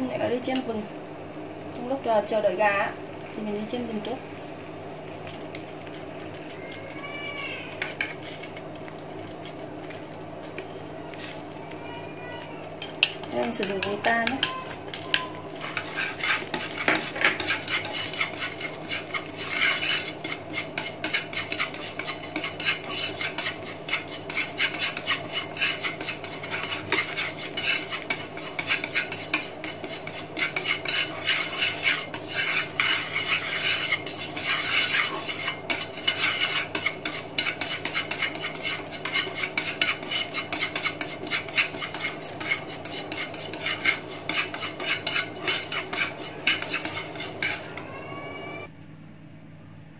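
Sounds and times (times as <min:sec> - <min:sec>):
chopsticks scraping seeds in a pan: 0:07.7 - 0:11.5, 0:12.4 - 0:47.9.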